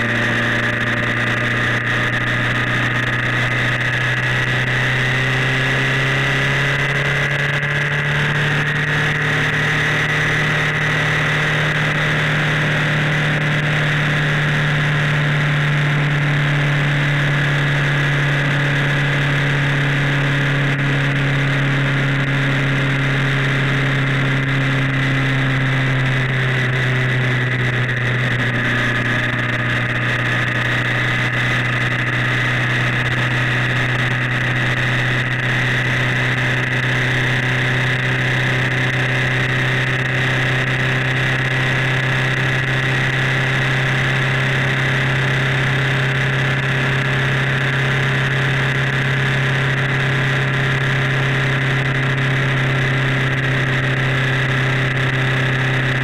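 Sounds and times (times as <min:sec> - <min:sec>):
motorcycle engine running steadily: 0:00.0 - 0:56.0.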